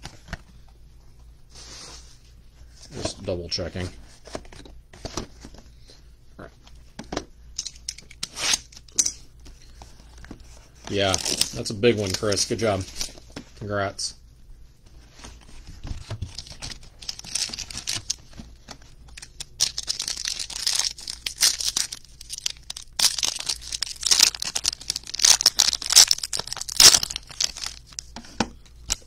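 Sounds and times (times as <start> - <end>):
plastic wrapping tearing and crinkling: 10.9 - 13.2, 16.3 - 18.3, 19.1 - 28.1.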